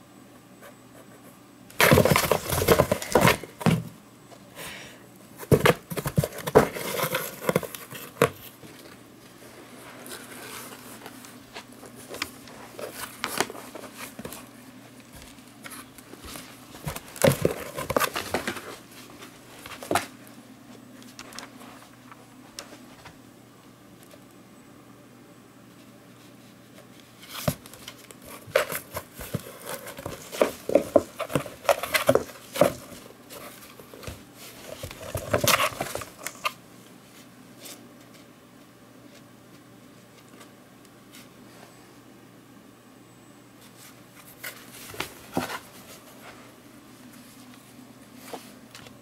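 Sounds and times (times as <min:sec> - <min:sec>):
kitten scratching in cardboard box: 0:05.4 - 0:08.4, 0:27.3 - 0:36.5.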